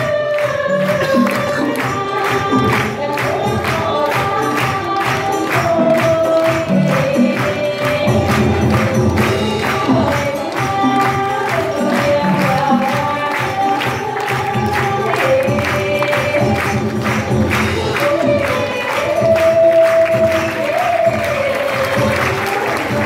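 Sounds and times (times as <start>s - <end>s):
person singing: 0.0s - 23.0s
quick percussive beat: 0.0s - 23.0s
traditional ensemble playing: 0.0s - 23.0s.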